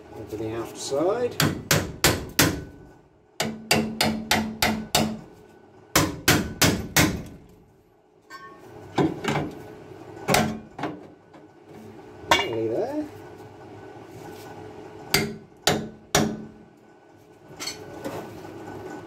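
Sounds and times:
hammer tapping steel: 3.4 - 5.2.

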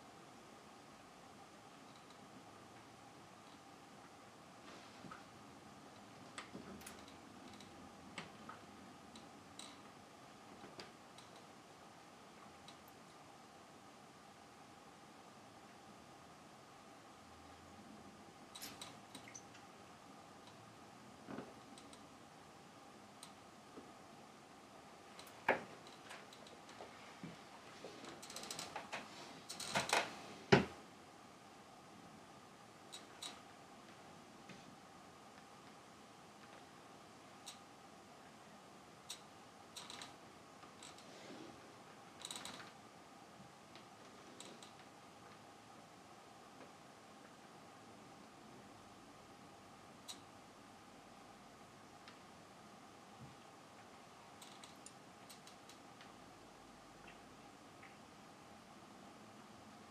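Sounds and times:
small creaks: 6.3 - 9.9, 25.1 - 30.7, 32.9 - 33.4, 39.1 - 42.8, 43.7 - 45.4, 54.4 - 56.1
faint clicks: 21.6 - 22.1, 54.4 - 56.2.

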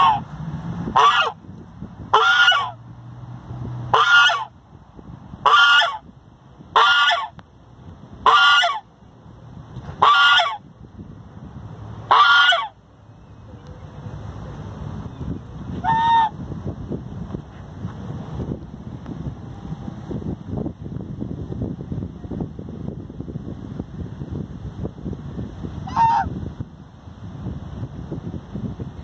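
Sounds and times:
goose honking: 1.0 - 1.4, 2.1 - 2.8, 3.9 - 4.5, 5.4 - 6.0, 6.8 - 7.3, 8.2 - 8.8, 10.0 - 10.6, 12.1 - 12.8, 15.8 - 16.3, 25.9 - 26.3.

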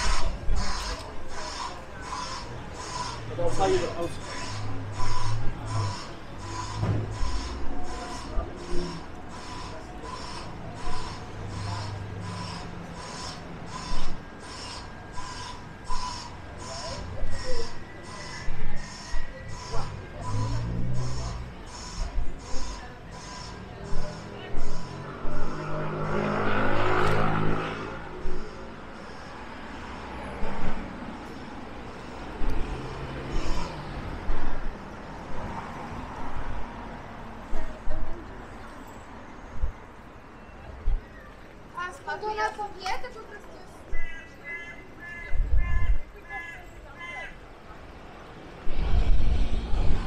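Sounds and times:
road traffic rumble: 0.0 - 50.0
street background noise: 0.0 - 50.0
low bumps: 30.4 - 38.2, 48.6 - 50.0.

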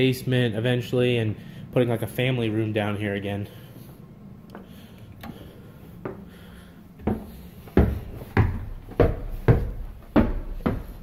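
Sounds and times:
footsteps on wooden stairs: 4.5 - 11.0.

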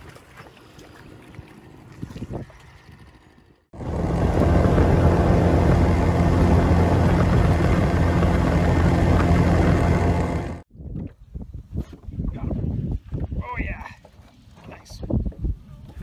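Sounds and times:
outboard motor running: 2.9 - 10.6.

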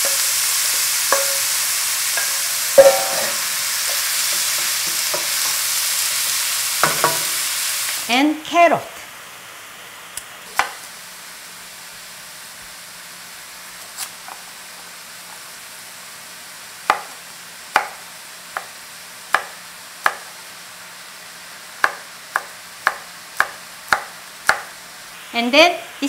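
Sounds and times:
mushrooms sizzling in a pan: 0.0 - 26.0
knife chopping on wooden board: 16.9 - 17.1, 21.8 - 24.7.

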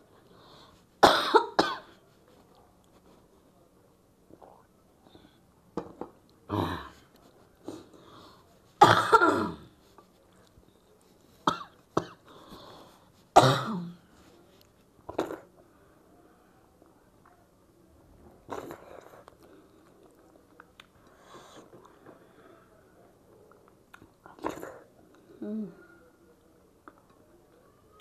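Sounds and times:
woman coughing: 1.0 - 1.9, 8.8 - 9.6, 13.4 - 14.0.

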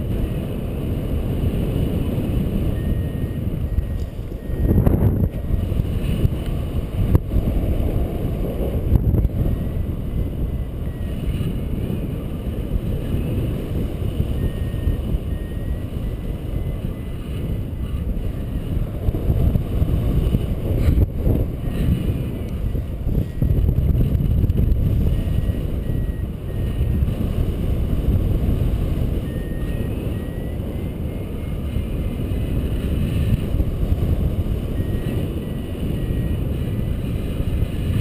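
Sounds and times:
wind buffeting microphone: 0.0 - 38.0
faint short high beeps: 2.7 - 5.5, 14.3 - 18.6, 25.1 - 27.0, 29.2 - 31.5, 34.8 - 36.4.

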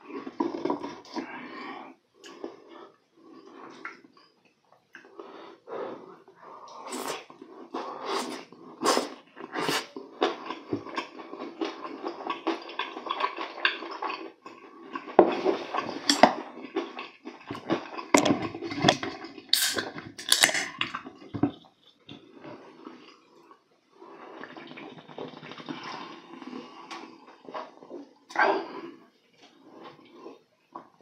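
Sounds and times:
wet chewing and lip smacks: 3.4 - 5.1
noodles slurping: 5.0 - 31.0.

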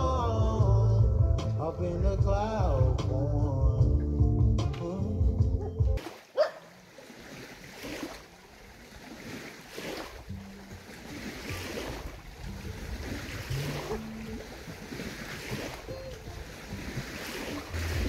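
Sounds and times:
lake water lapping: 6.0 - 18.0
wind on microphone: 11.2 - 18.0.

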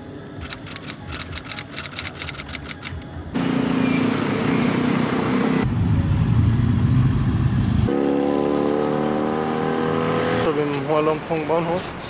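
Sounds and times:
cars and motorcycles passing: 3.0 - 12.0.

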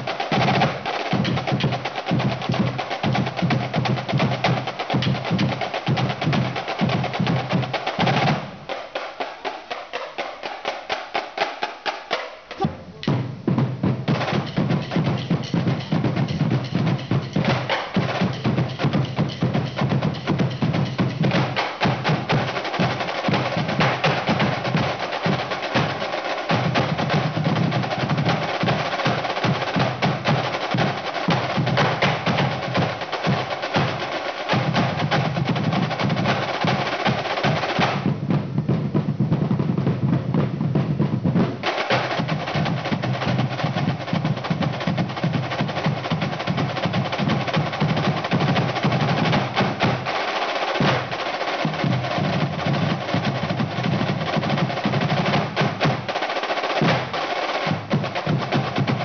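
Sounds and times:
snare drums playing in unison: 0.0 - 59.0
bass drums: 12.5 - 26.0, 37.9 - 50.1.

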